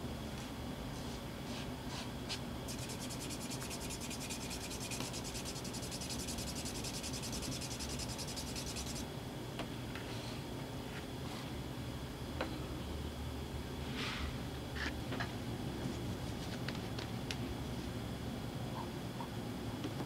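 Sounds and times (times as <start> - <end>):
wooden tool rubbing leather: 2.7 - 9.0.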